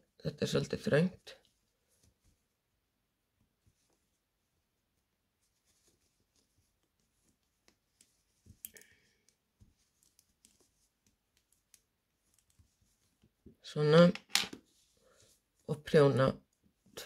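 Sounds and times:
wool yarn rustling: 0:00.0 - 0:17.0
knitting needles clicking: 0:07.6 - 0:12.7.

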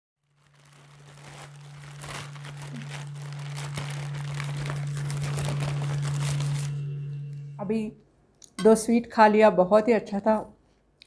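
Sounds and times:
plastic bag crinkling: 0:00.2 - 0:07.5
steady low hum: 0:00.7 - 0:09.2.

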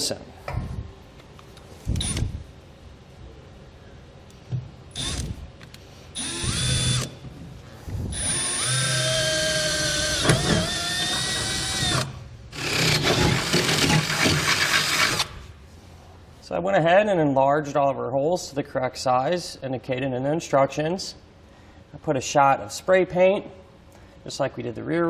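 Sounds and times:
cordless drill drilling: 0:06.2 - 0:07.1, 0:08.2 - 0:15.3.

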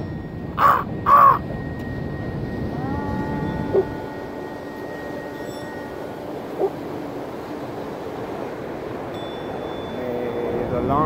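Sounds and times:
faint steady tone: 0:00.0 - 0:11.0
ocean surf: 0:00.0 - 0:11.0
bird calling: 0:00.6 - 0:01.4, 0:02.8 - 0:07.0.

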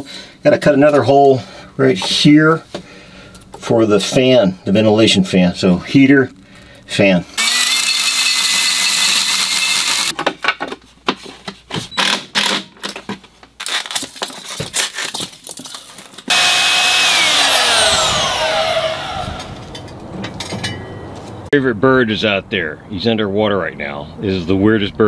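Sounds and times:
drill cutting steel whine: 0:07.4 - 0:10.1, 0:16.3 - 0:19.7
power tool winding down: 0:07.4 - 0:10.1, 0:16.3 - 0:19.8.

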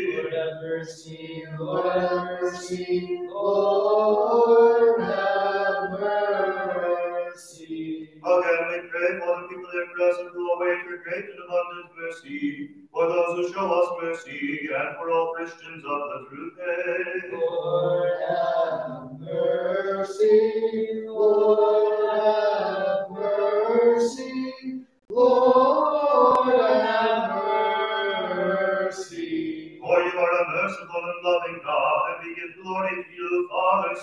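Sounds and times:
voices singing chant: 0:00.0 - 0:34.0.

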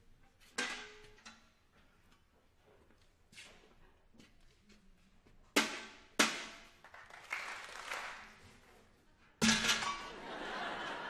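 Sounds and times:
metal bucket clanging: 0:00.4 - 0:01.5, 0:09.4 - 0:10.2.

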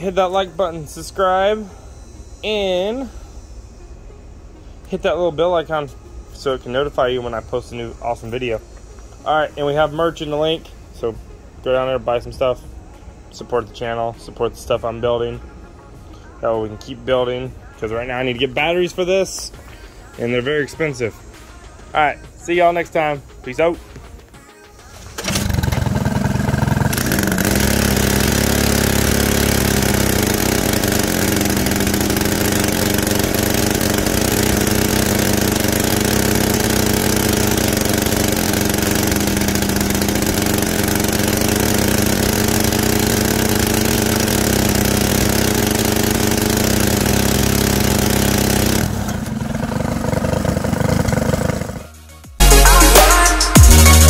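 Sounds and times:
small gasoline engine running: 0:00.0 - 0:15.5, 0:25.0 - 0:52.8.

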